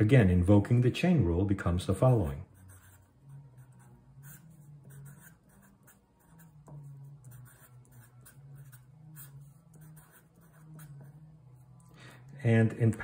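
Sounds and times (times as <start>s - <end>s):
marker scratching on paper: 2.0s - 11.9s.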